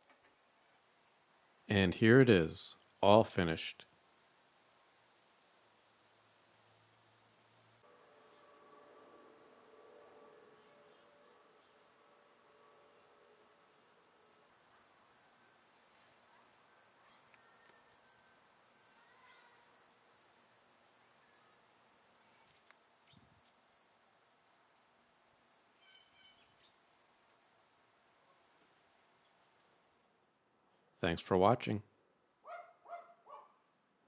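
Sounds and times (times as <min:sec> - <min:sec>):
faint steady hiss: 0:00.0 - 0:32.4
insects chirping: 0:04.0 - 0:30.0.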